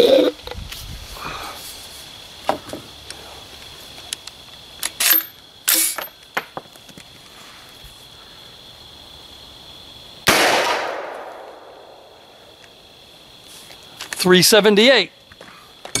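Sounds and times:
loud gunshot: 10.3s - 11.8s.

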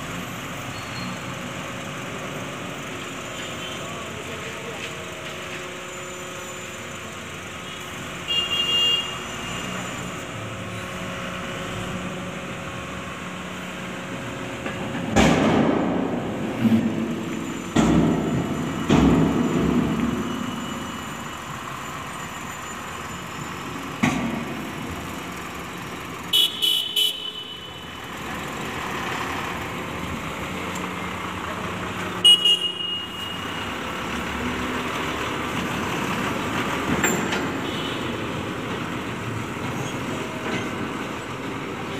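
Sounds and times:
diesel truck engine running: 0.0s - 8.3s, 9.1s - 41.9s
heavy knocks and bangs: 15.0s - 20.1s.

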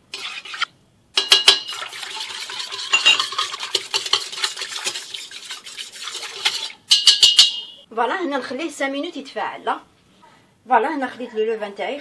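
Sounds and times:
whisk scraping metal bowl: 0.0s - 6.8s.

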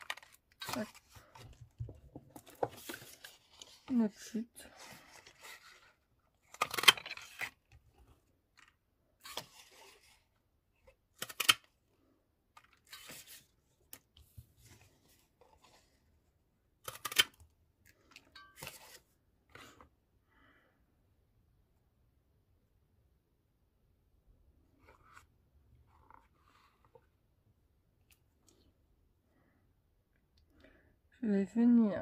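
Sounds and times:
card rustling and clicking: 0.0s - 3.9s, 4.8s - 7.8s, 10.8s - 11.8s, 16.8s - 19.8s.

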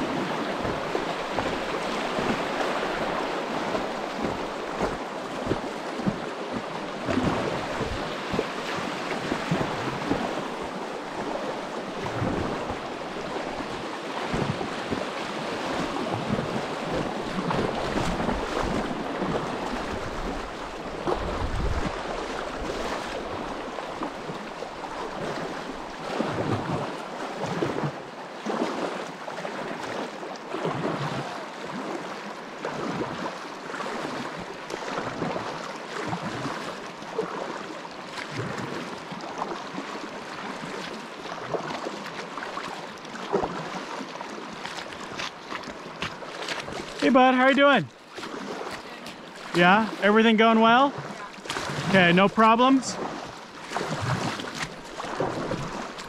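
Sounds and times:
creek water flowing: 0.0s - 56.0s
paddle strokes splashing water: 0.0s - 56.0s
wind rumbling on microphone: 6.9s - 27.0s.

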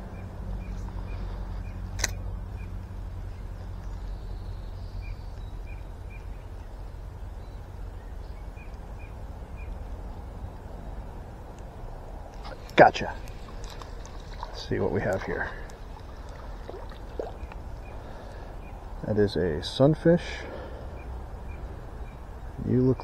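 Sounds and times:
steady low rumble: 0.0s - 23.0s
sharp click: 2.0s - 2.2s.

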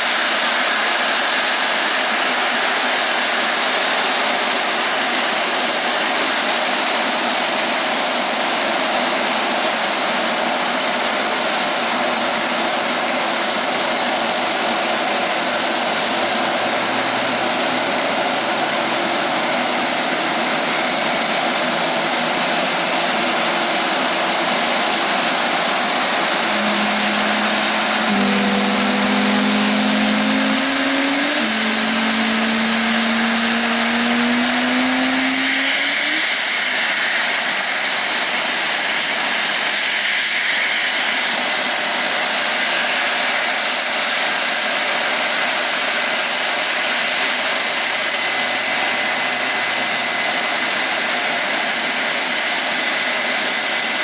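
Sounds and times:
jet engines roaring: 14.2s - 38.2s
low hums rising in pitch: 25.8s - 36.5s.

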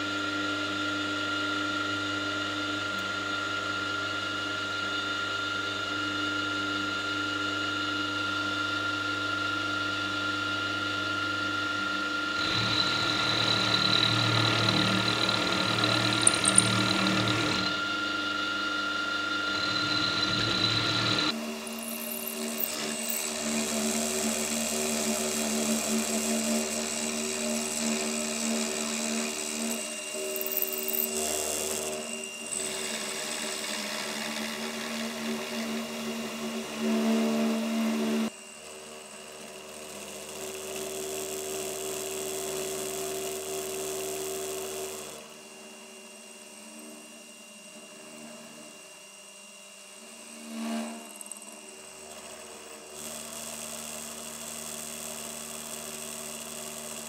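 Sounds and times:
milling machine motor hum: 9.1s - 38.3s.

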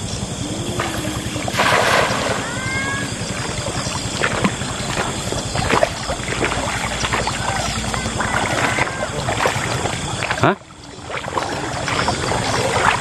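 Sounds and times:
wading splashes: 0.4s - 13.0s
cast net splashing into water: 1.5s - 2.5s.

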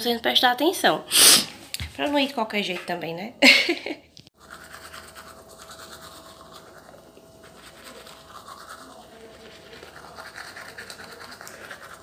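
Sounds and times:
toothbrush scrubbing teeth: 4.4s - 12.0s.

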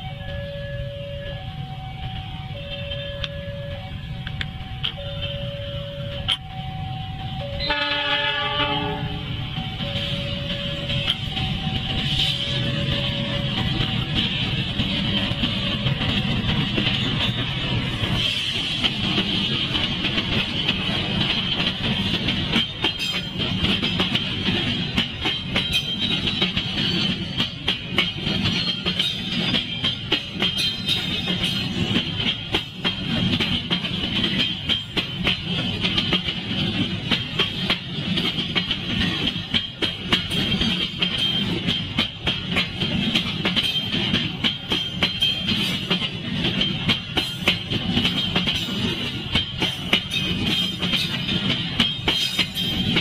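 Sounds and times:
freight train wagons rumbling: 0.0s - 53.0s
wheel clacks over rail joints: 12.0s - 53.0s.

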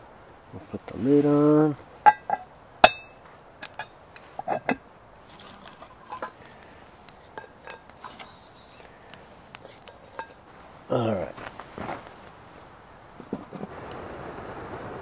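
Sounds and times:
tongs clinking on stove: 5.9s - 6.4s, 7.1s - 8.8s, 9.6s - 10.4s.

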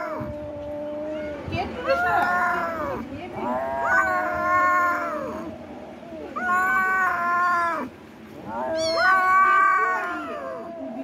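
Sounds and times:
kitten meowing: 8.5s - 10.7s.

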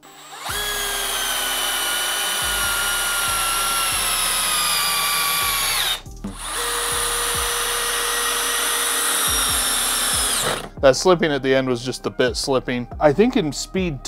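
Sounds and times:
second drill lower whine: 0.0s - 10.7s
drill driving screw whining: 0.0s - 10.8s.

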